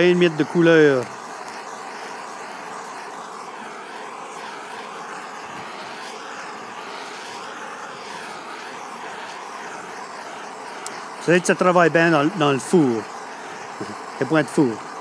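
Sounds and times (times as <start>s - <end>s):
blowtorch flame hissing: 0.0s - 15.0s.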